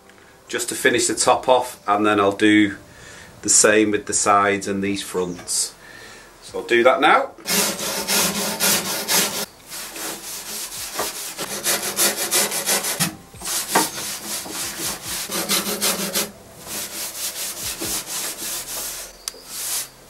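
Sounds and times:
brush scrubbing wood: 7.4s - 20.0s.

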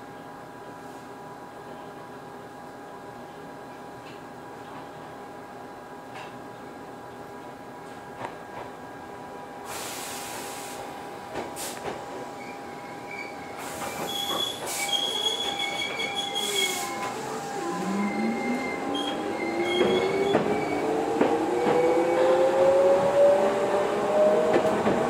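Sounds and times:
short bursts of hiss: 9.7s - 10.9s
high wheel squeal: 12.4s - 20.9s
train traction motor whine: 12.4s - 24.9s.

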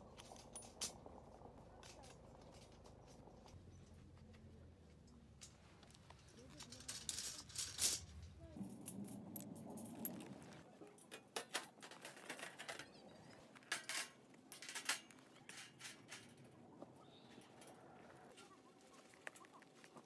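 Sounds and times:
metal parts clinking and tapping: 5.4s - 10.4s, 11.0s - 16.5s.

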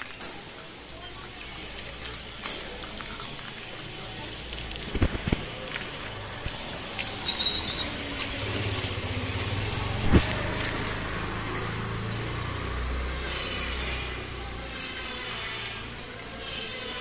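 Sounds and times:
vehicle engine humming: 0.7s - 17.0s
brief high squeak: 7.1s - 8.0s.

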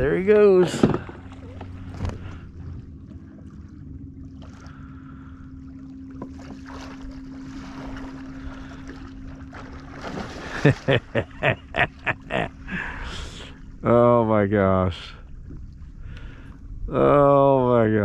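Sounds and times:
steady low hum: 0.0s - 18.0s
water and wind noise: 0.0s - 18.0s.

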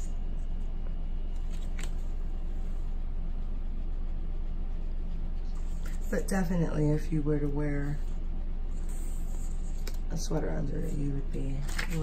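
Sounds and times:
low room hum: 0.0s - 12.0s
paper booklet rustling: 1.3s - 2.2s, 11.4s - 12.0s.

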